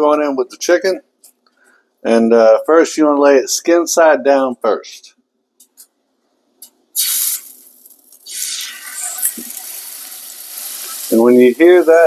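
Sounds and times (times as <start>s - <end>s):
chicken sizzling in hot oil: 7.0s - 12.0s
steady frying hiss: 7.0s - 12.0s.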